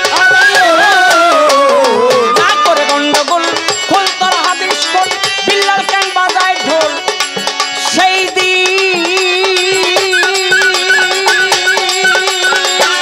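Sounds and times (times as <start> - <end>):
man singing: 0.0 - 7.0, 7.9 - 13.0
hand drums beating: 0.0 - 13.0
melodic accompaniment: 9.6 - 13.0.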